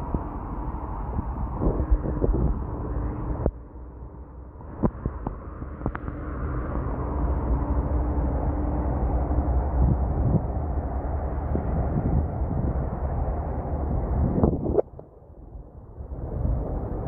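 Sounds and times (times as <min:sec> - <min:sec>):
road traffic: 0:00.0 - 0:17.0
wind rumble on microphone: 0:00.0 - 0:17.0.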